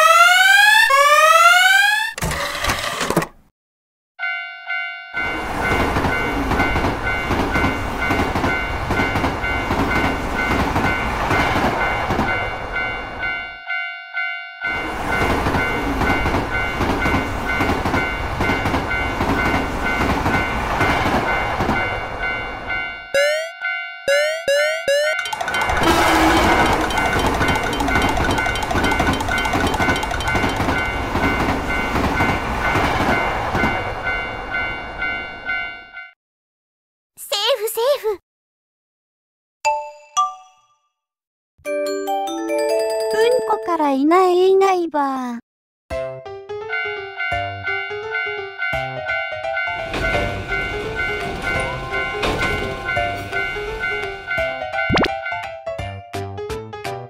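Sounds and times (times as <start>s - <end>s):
railroad crossing bell ringing: 4.2s - 36.2s, 46.6s - 55.6s
train rumble and wheel clatter: 5.2s - 13.5s, 14.6s - 23.0s, 25.2s - 35.7s, 46.8s - 54.8s.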